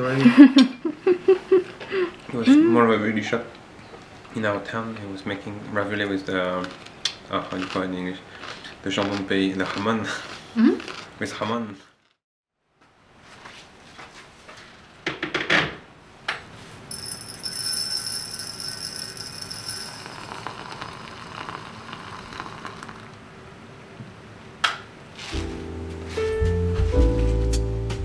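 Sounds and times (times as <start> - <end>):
glass teapot clinking: 16.9 - 23.1
loose tea poured into glass: 19.5 - 23.2
hiss of pouring: 19.8 - 23.2.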